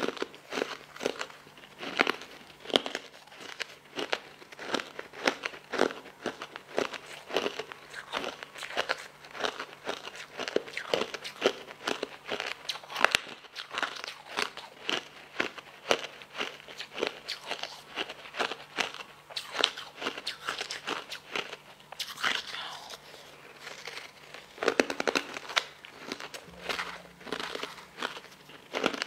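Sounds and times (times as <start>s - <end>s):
ice balls crunching: 18.0s - 29.0s.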